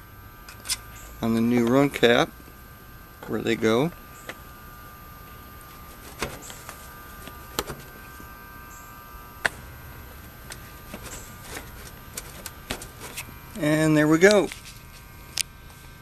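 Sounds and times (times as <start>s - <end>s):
handling rustles: 5.6s - 8.3s, 10.4s - 13.3s.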